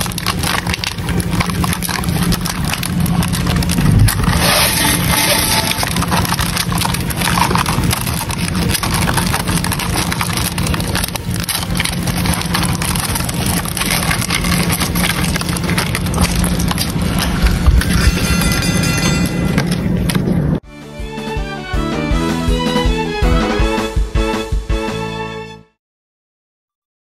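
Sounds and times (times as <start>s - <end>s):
beetles scratching on a log: 0.0s - 18.2s
steady low hum: 0.0s - 20.6s.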